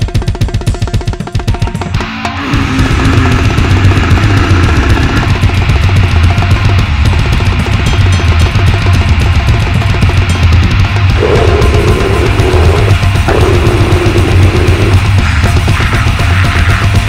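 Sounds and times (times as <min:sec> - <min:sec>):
distorted guitar and bass: 0:00.0 - 0:17.0
fast drumming: 0:00.0 - 0:17.0.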